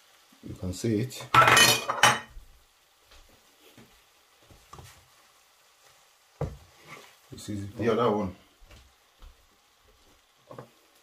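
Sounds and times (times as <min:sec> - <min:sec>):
spatula stirring leaves in pan: 0:00.0 - 0:11.0
plate clattering on counter: 0:01.3 - 0:02.4.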